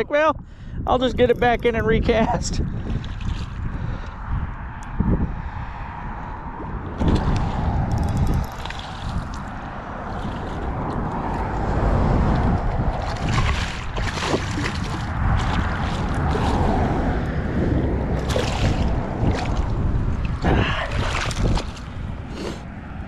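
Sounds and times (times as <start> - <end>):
wind on microphone: 0.0 - 23.0
fish thrashing and splashing: 2.9 - 4.0, 6.9 - 11.5, 12.3 - 17.2, 18.0 - 22.3.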